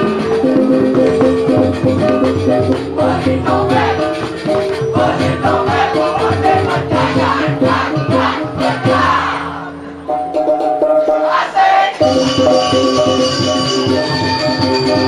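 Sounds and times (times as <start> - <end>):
gamelan ensemble playing: 0.0 - 9.1, 9.7 - 15.0.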